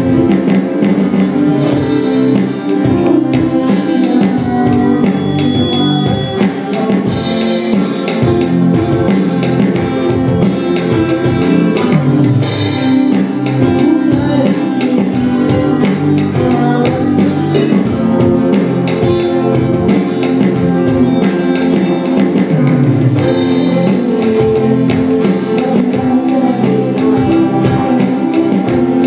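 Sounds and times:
electric guitar: 0.0s - 29.0s
man singing into a microphone: 1.5s - 7.9s, 12.6s - 29.0s.

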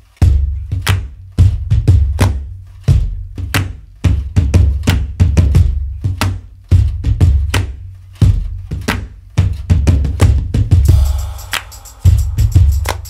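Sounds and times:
drum beat: 0.2s - 13.0s
deep bass hits: 10.4s - 13.0s.

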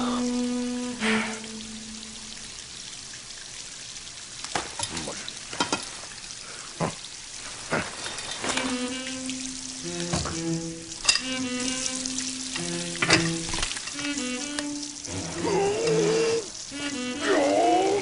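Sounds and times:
held music note: 0.0s - 2.4s
water running and spilling: 0.0s - 18.0s.

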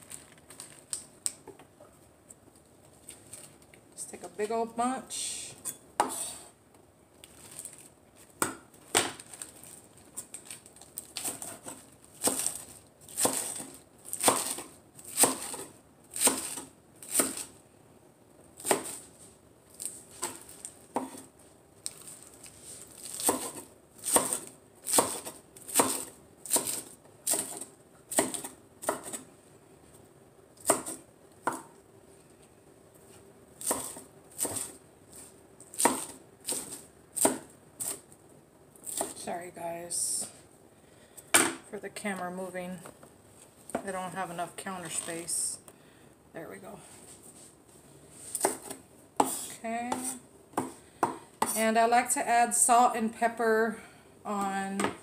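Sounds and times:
knife chopping lettuce: 11.0s - 17.5s, 18.6s - 19.0s, 23.0s - 29.2s, 30.6s - 31.7s, 33.6s - 38.0s, 38.8s - 39.2s, 48.3s - 51.6s.

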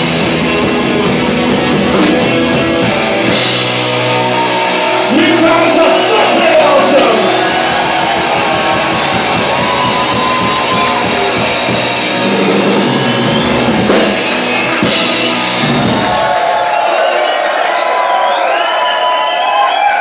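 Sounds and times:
punk rock band playing: 0.0s - 16.8s.

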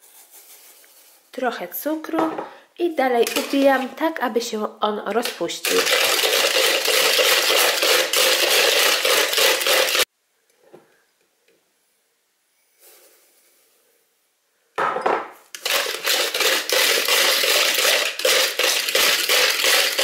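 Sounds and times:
wire whisk beating in a bowl: 5.6s - 10.1s, 15.6s - 20.0s.

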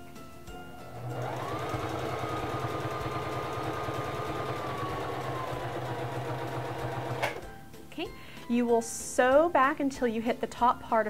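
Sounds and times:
sewing machine running: 0.8s - 7.4s.

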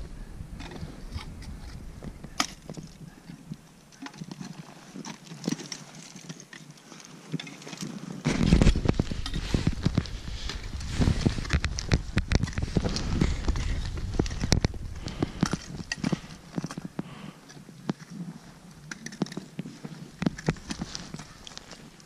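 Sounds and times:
wind rumble on microphone: 0.0s - 5.1s, 7.9s - 22.0s.

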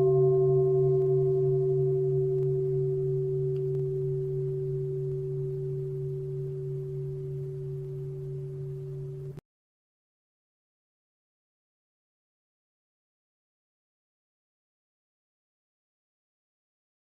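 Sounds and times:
meditation bell ringing: 0.0s - 9.4s.

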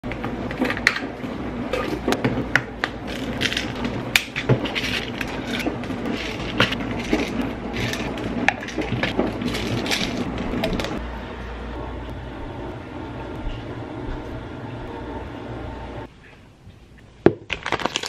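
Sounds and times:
pills rattling in bottles: 3.1s - 3.9s, 4.6s - 10.9s, 17.5s - 18.0s.

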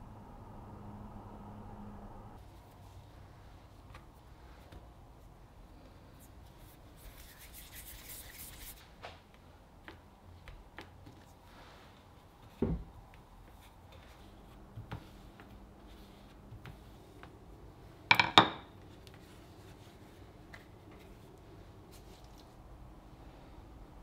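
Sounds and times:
rolling pin tapping on wood: 18.1s - 18.7s.

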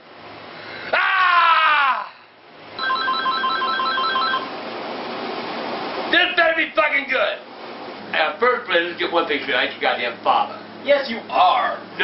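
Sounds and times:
man yelling: 0.9s - 2.3s
phone ringing electronic trill: 2.8s - 4.5s.

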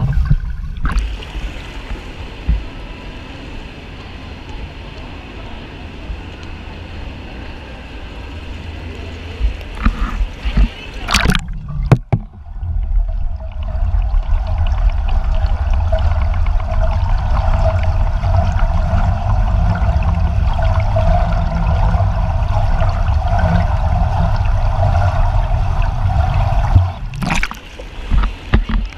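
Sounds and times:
water splash: 0.0s - 2.7s, 10.6s - 28.9s
muffled underwater water rumble: 0.0s - 28.9s.

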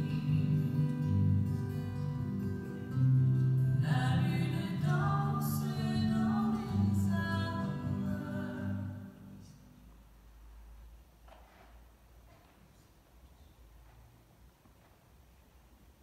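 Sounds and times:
person singing a hymn: 0.0s - 1.3s, 3.8s - 9.6s.

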